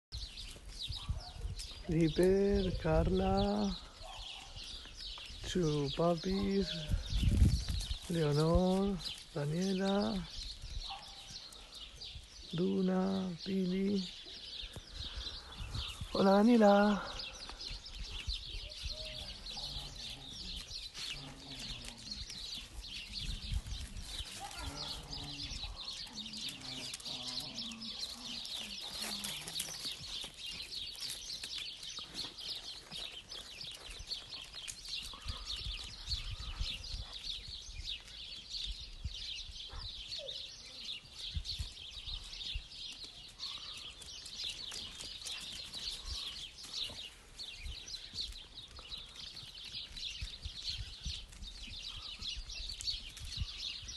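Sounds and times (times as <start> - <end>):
small birds chirping: 0.1 - 53.9
low animal calls: 18.6 - 29.8.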